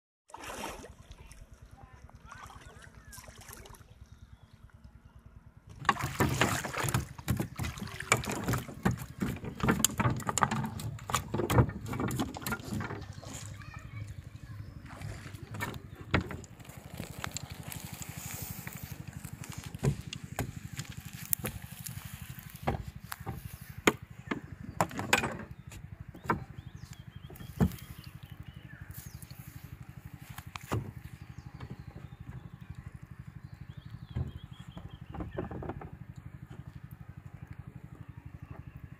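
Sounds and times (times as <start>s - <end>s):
plastic bucket set down: 5.8s - 13.5s
fish flapping on wooden deck: 5.8s - 14.3s, 14.9s - 25.4s.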